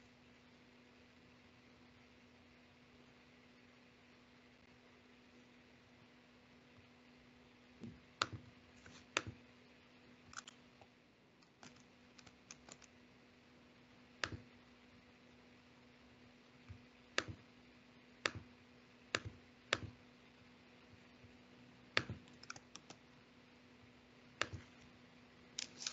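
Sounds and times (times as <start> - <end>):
faint steady hum: 0.0 - 25.9
keyboard clicks: 11.4 - 12.9, 22.0 - 23.0.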